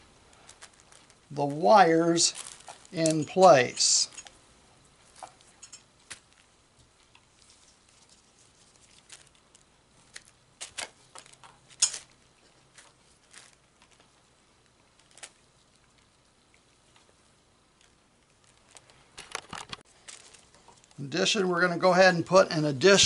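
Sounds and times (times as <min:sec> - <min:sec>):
electrical tape crackles and clicks: 0:00.2 - 0:04.4, 0:05.0 - 0:21.1.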